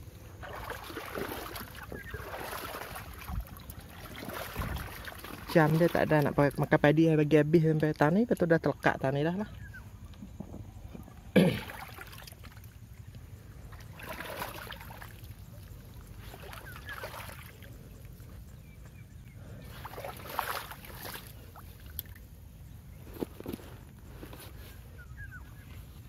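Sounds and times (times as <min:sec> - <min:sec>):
footsteps squelching in wet mud: 0:00.4 - 0:06.7, 0:11.0 - 0:22.3.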